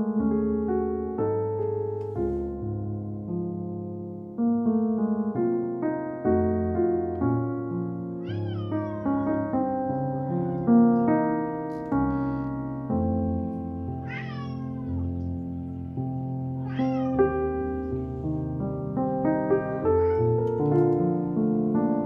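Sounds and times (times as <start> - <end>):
piano music: 0.0 - 22.0
cat meowing: 8.2 - 11.2, 12.0 - 12.6, 14.0 - 16.0, 16.6 - 18.1, 19.7 - 20.4.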